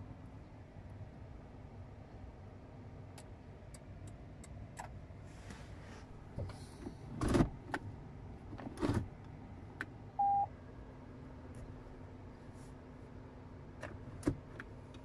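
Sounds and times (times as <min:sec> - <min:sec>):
short electronic beep: 0:10.2 - 0:10.5.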